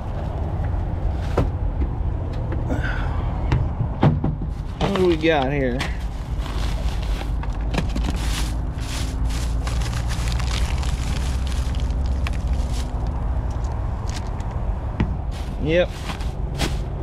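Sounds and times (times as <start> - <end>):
steady low rumble: 0.0 - 17.0
plastic bags crinkling: 6.0 - 14.6, 15.3 - 17.0.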